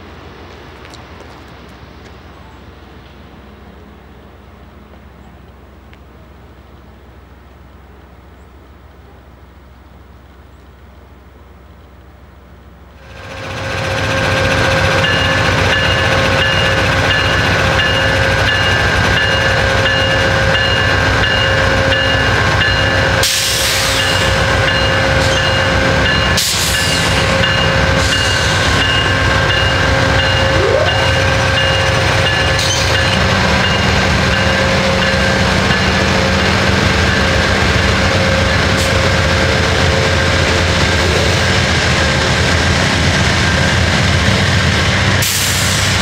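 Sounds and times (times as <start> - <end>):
diesel locomotive drone: 0.0 - 46.0
steady whine: 27.2 - 42.4.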